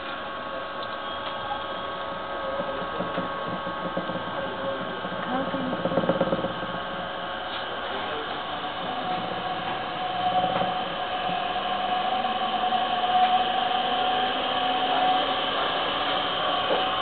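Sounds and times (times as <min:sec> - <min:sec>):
motor whining tones: 0:01.0 - 0:17.0
electric motor whirring hum: 0:01.6 - 0:17.0.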